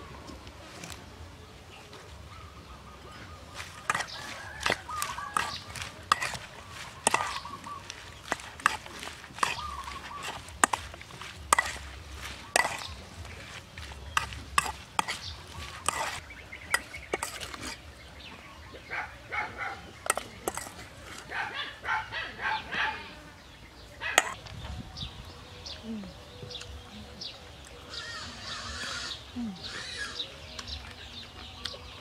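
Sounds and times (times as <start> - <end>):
metal spoon clinking in steel bowl: 3.6 - 12.9, 20.0 - 21.2.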